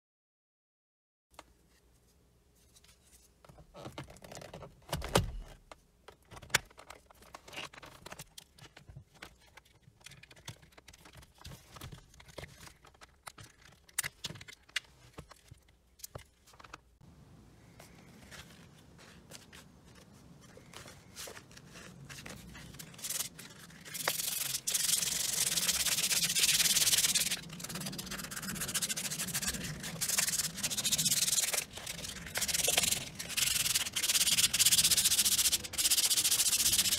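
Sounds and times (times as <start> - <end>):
sandpaper scrubbing plastic: 21.6 - 36.9.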